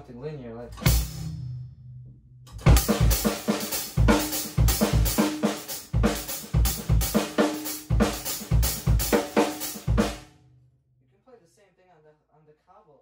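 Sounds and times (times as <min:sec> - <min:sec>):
drum kit groove: 0:00.8 - 0:01.4, 0:02.5 - 0:10.3
bass drum thumps: 0:00.8 - 0:01.6, 0:02.5 - 0:10.3
snare and hi-hat strokes: 0:02.6 - 0:10.2.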